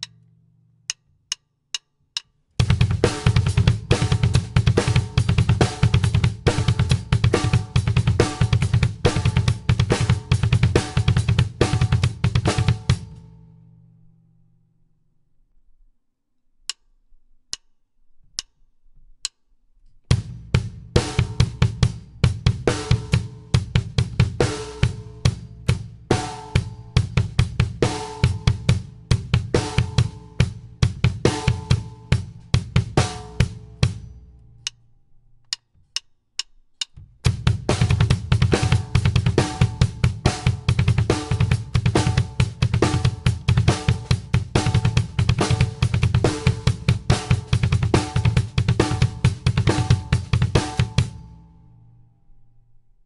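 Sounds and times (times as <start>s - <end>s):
drumsticks clicking together: 0.0s - 0.3s, 0.9s - 2.4s, 16.7s - 17.7s, 18.4s - 18.6s, 35.4s - 37.0s
drum kit groove: 0.9s - 13.2s, 20.1s - 34.8s, 35.5s - 51.4s
fast bass drum strokes: 2.6s - 13.2s, 20.1s - 34.3s, 37.0s - 51.4s
snare and cymbal hits: 2.6s - 13.2s, 20.1s - 34.8s, 36.9s - 51.4s.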